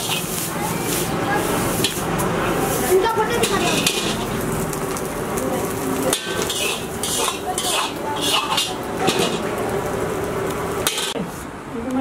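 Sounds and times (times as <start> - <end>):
metal ladle scraping a wok: 0.0 - 4.4, 5.7 - 10.1, 10.7 - 11.4.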